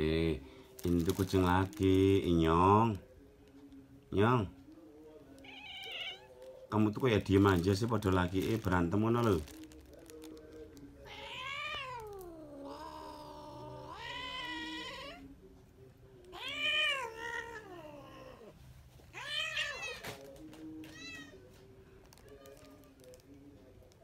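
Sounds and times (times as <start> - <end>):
cat yowling: 5.4 - 6.4, 11.0 - 15.3, 16.3 - 18.5, 19.1 - 20.1.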